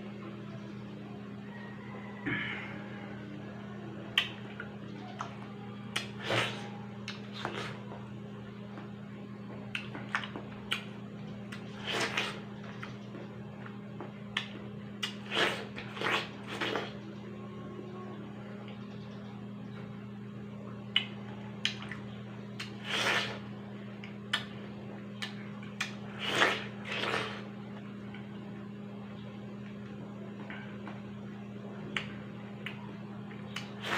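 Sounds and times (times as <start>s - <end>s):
low electrical hum: 0.0s - 33.9s
wet mouth clicks: 5.9s - 7.6s, 22.6s - 23.3s
watermelon bites and slurps: 6.0s - 7.8s, 11.5s - 12.9s, 14.4s - 17.0s, 22.6s - 23.5s, 25.2s - 27.5s, 33.5s - 33.9s.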